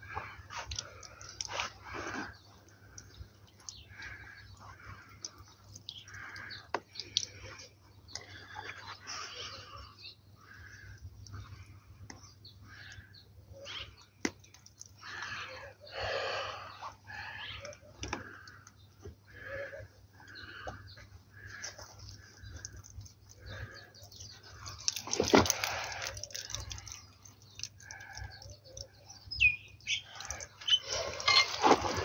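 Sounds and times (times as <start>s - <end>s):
bird chirps: 26.2s - 31.7s.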